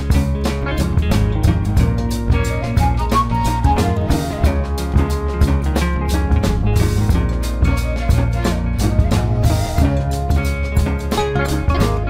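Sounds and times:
background music with drum beat: 0:00.0 - 0:12.0.

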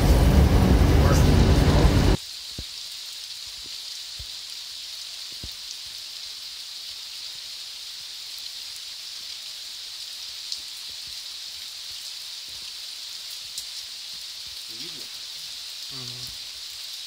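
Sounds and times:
light rain hissing: 0:00.0 - 0:17.0
soft water drips: 0:08.4 - 0:16.8.

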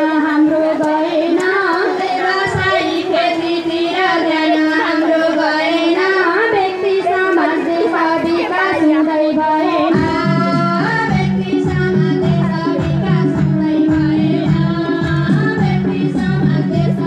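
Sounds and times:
women singing in high voices: 0:00.0 - 0:17.0
musical accompaniment: 0:09.4 - 0:17.0.

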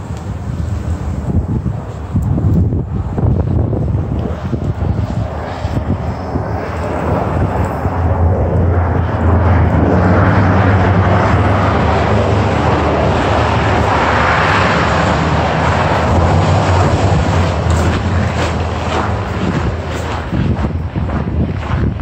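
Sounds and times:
bus engine driving past: 0:06.8 - 0:21.2.

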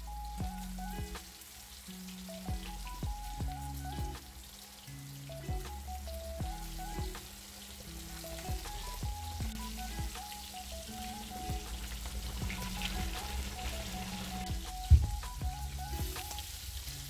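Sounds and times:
background music: 0:00.0 - 0:17.0
meat sizzling in hot oil: 0:01.2 - 0:14.8.

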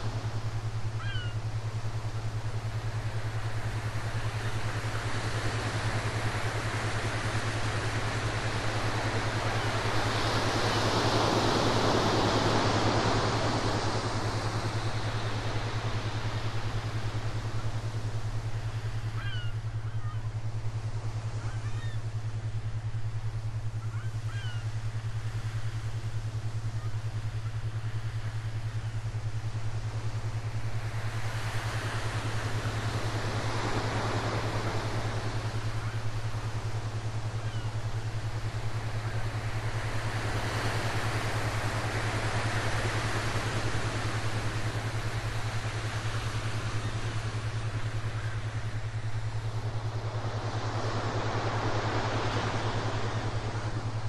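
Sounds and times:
steady low hum: 0:00.0 - 0:54.0
ocean waves washing in: 0:24.9 - 0:54.0.

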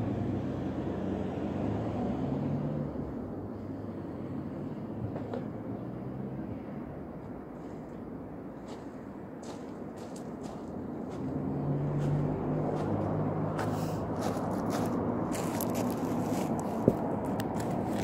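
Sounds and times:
footsteps in flip-flops on gravel: 0:08.6 - 0:18.0.

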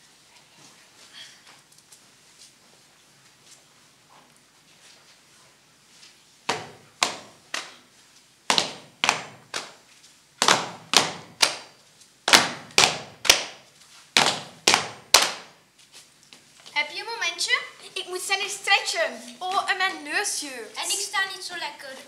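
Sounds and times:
sharp rhythmic knocks in hall: 0:06.5 - 0:07.8, 0:08.5 - 0:09.8, 0:10.4 - 0:13.6, 0:14.2 - 0:15.6.

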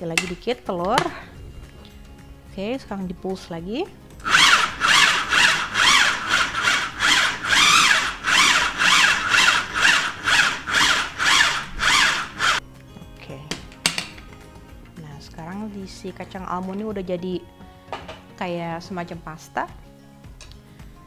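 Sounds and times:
food processor motor pulsing: 0:04.2 - 0:12.6.

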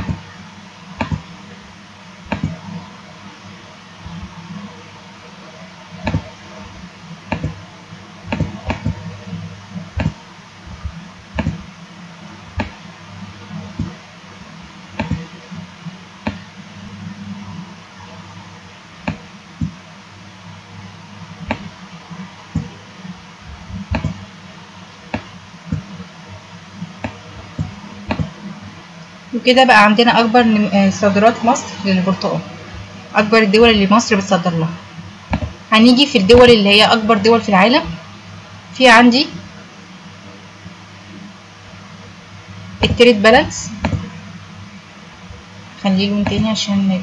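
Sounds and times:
steady low hum: 0:00.0 - 0:47.0
computer mouse clicking: 0:02.3 - 0:02.6, 0:07.3 - 0:07.6, 0:10.0 - 0:10.2, 0:11.4 - 0:11.6, 0:15.0 - 0:15.2, 0:23.9 - 0:24.2, 0:27.0 - 0:28.3, 0:43.8 - 0:44.1.

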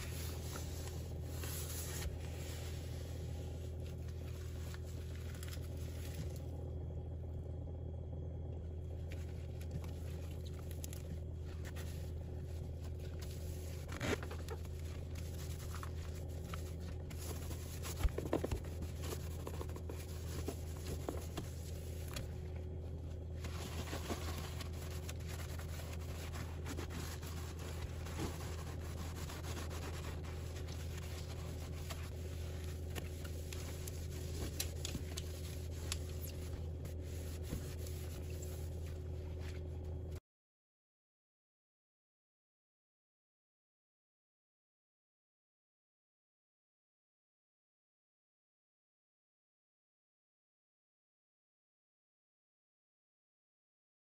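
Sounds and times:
cloth wiping plastic: 0:00.0 - 0:06.5, 0:09.0 - 0:39.9
steady low hum: 0:00.0 - 0:40.2.

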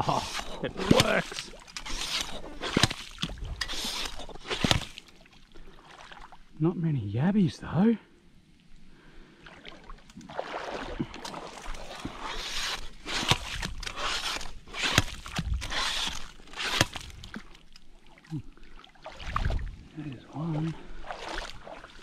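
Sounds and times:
pump splashing in water: 0:00.0 - 0:05.1.

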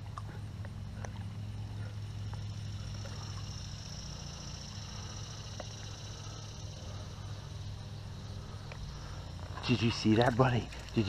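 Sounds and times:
constant low hum: 0:00.0 - 0:11.0
faint ticks: 0:02.2 - 0:06.6, 0:08.6 - 0:11.0.

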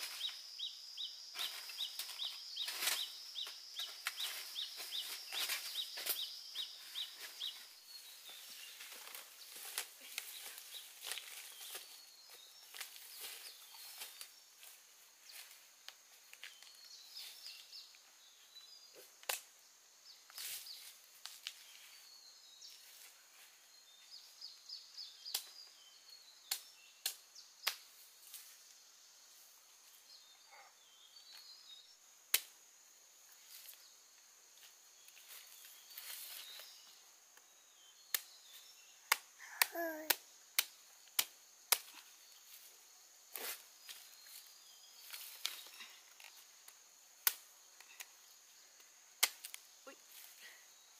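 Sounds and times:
birds chirping: 0:00.0 - 0:15.5
insect drone: 0:00.0 - 0:50.9.

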